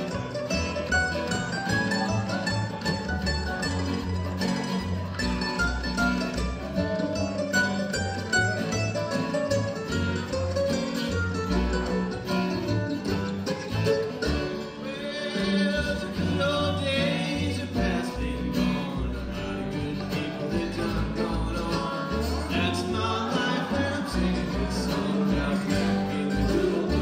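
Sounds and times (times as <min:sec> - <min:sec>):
bluegrass string band playing: 0:00.0 - 0:27.0
person singing: 0:14.7 - 0:27.0.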